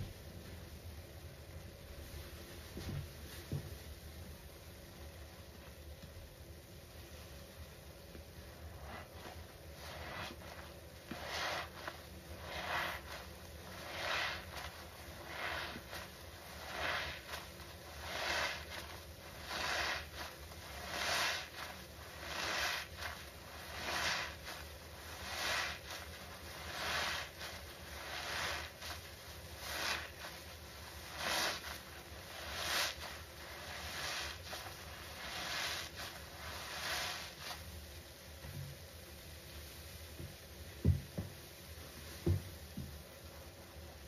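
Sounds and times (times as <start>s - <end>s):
wet sponges squelching: 8.4s - 37.7s.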